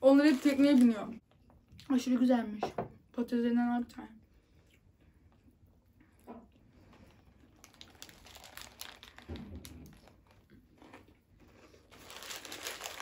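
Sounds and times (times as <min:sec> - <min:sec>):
paper packaging crinkling: 0:00.0 - 0:01.1, 0:07.5 - 0:10.5, 0:11.8 - 0:13.0.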